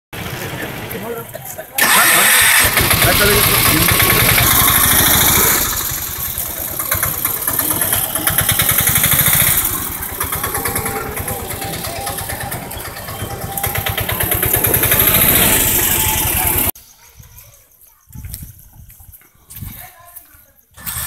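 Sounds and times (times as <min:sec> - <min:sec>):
small vehicle engine revving: 0:01.8 - 0:16.8, 0:20.8 - 0:21.0.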